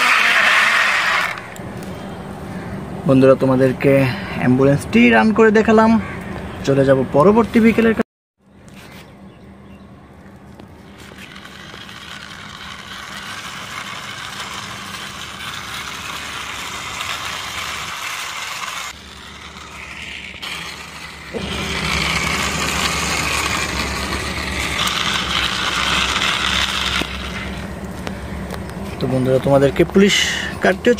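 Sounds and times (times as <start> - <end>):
toy car wheels rolling on concrete: 0.0 - 1.6, 10.5 - 30.9.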